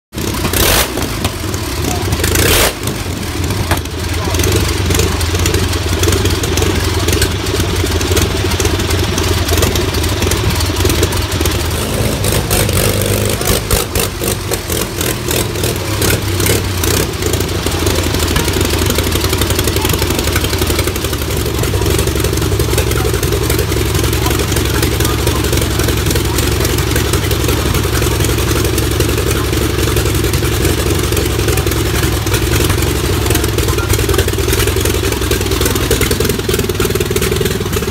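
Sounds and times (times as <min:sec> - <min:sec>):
aero engine droning at idle: 0:00.1 - 0:37.9.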